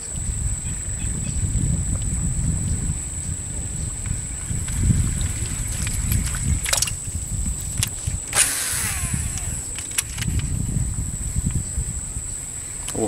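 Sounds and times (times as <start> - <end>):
insects droning: 0.0 - 13.0
wind rumbling on microphone: 0.0 - 13.0
sharp clicks: 5.8 - 7.0, 7.7 - 10.5.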